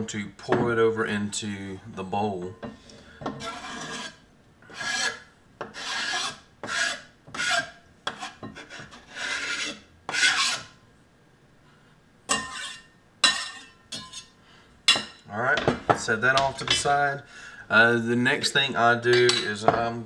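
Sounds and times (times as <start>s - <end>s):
utensil scraping into a bowl: 3.3s - 10.8s, 12.3s - 14.3s.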